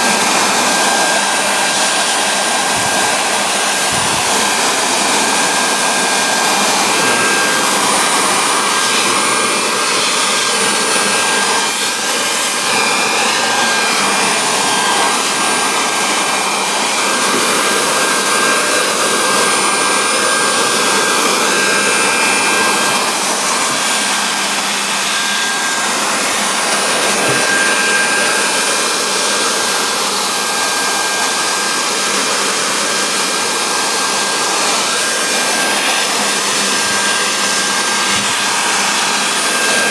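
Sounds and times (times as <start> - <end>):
leaf blower running: 0.0 - 39.9.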